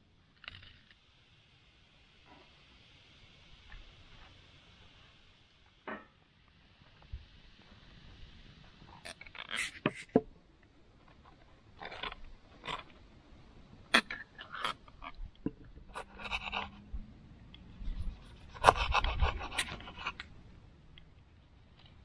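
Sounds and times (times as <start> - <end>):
knife scraping toasted bread: 15.9 - 16.8, 17.9 - 20.2.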